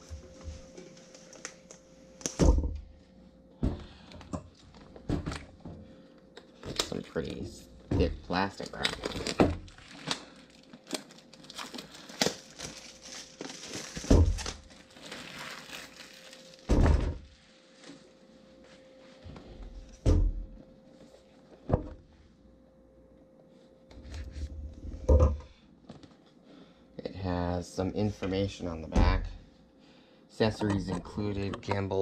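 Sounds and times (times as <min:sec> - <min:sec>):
plastic shrink wrap crinkling: 0:00.8 - 0:02.4, 0:08.3 - 0:18.9.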